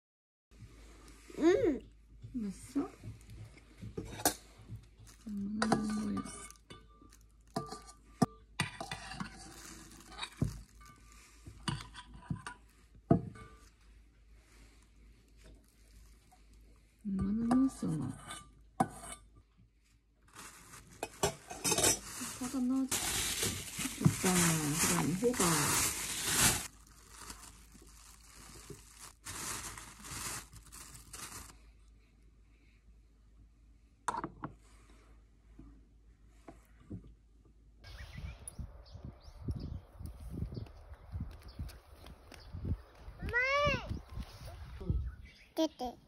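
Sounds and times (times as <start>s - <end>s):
hands stirring food in bowl: 3.0s - 14.0s
spoon scraping metal bowl: 7.6s - 9.5s.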